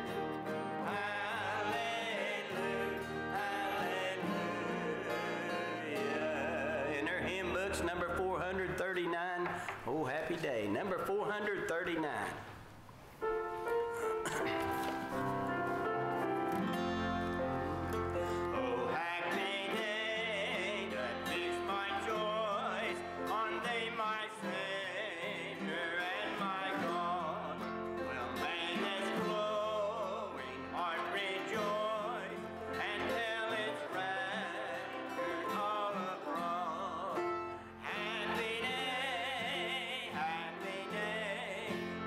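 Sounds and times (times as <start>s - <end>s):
group singing a hymn: 0.0s - 8.6s, 17.8s - 42.0s
mandolin: 0.0s - 9.5s, 13.3s - 42.0s
electric guitar: 13.2s - 24.8s.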